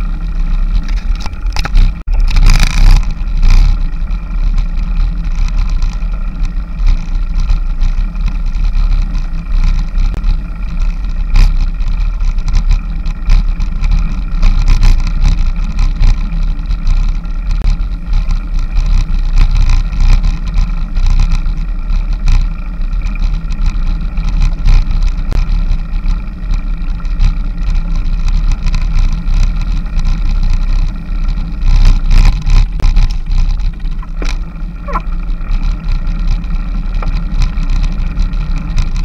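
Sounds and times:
wind and road rumble: 0.0s - 39.0s.

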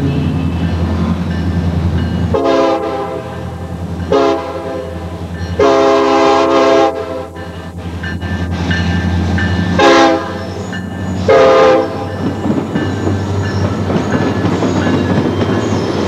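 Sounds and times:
diesel locomotive horn blasts: 2.3s - 7.5s, 9.7s - 10.6s, 11.2s - 12.3s.

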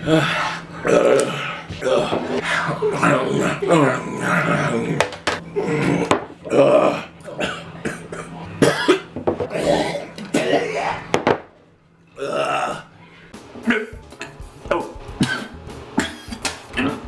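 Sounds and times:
man gagging: 0.0s - 7.1s, 13.6s - 17.0s
man burping: 12.2s - 12.9s, 13.6s - 14.4s, 15.2s - 17.0s
man coughing: 15.2s - 17.0s.

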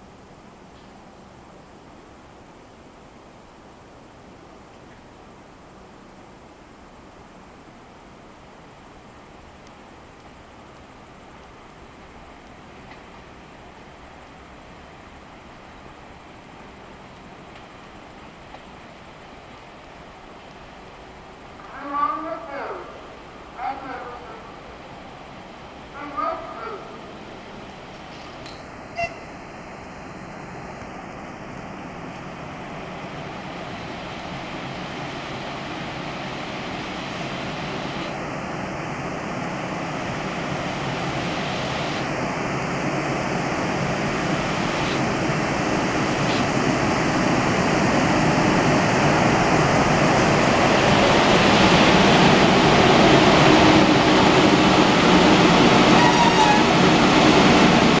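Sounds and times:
electric locomotive passing: 0.0s - 58.0s
train wheels on rails: 9.3s - 21.7s, 24.5s - 58.0s.

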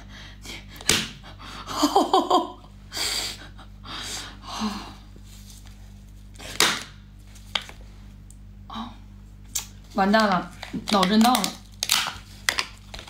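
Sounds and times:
crab shell cracking: 10.8s - 13.0s.

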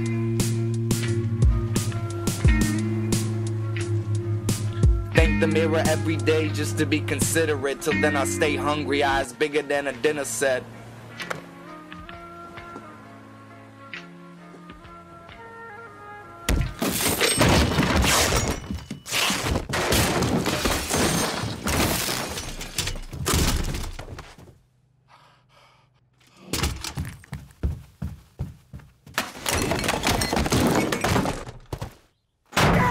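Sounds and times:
objects crashing and breaking: 16.5s - 24.4s, 29.2s - 32.9s.

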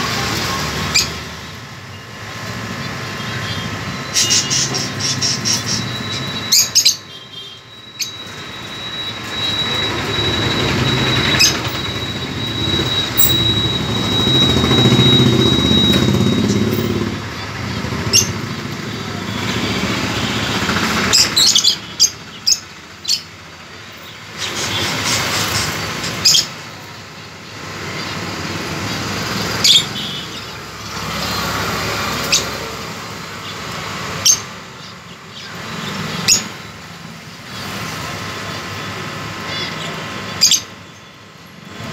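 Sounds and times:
lovebirds chirping shrilly: 3.4s - 17.1s, 18.0s - 23.4s, 24.3s - 26.6s, 27.6s - 36.8s, 39.4s - 41.1s.

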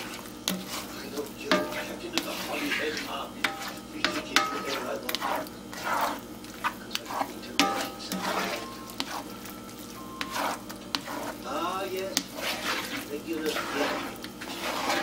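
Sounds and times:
spatula scraping skillet: 0.0s - 15.0s
spatula knocking on iron pan: 1.4s - 2.5s, 3.4s - 5.2s, 7.5s - 9.2s.

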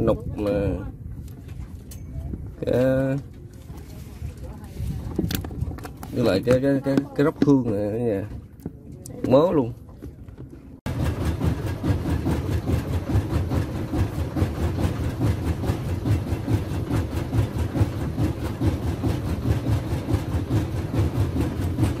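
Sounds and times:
boat engine chugging: 10.9s - 22.0s.

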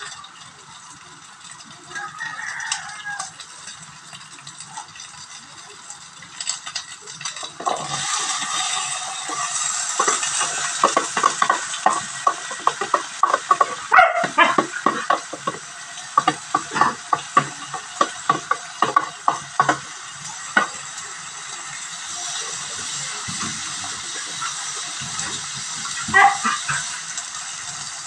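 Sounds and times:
oil sizzling in a pan: 0.0s - 28.0s
spoon knocking and scraping board: 7.6s - 19.9s.

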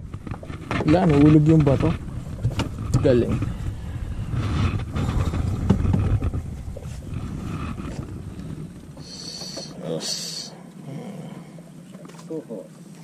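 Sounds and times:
wind buffeting microphone: 0.0s - 9.1s
microphone handling noise: 0.0s - 9.8s
short high hisses: 9.0s - 10.5s.

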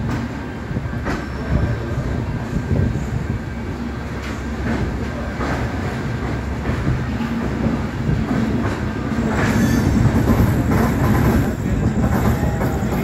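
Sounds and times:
train wheels rumbling on rails: 0.0s - 13.0s
high wheel squeal: 9.2s - 10.5s.

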